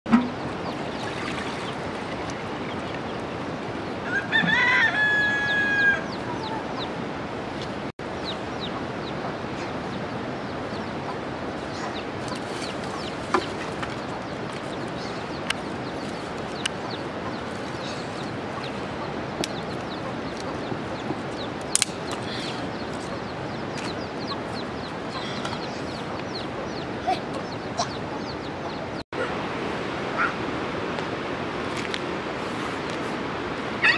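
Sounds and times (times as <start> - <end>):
steady outdoor hiss: 0.1 - 33.9
chickens clucking: 4.4 - 6.9, 10.7 - 29.3.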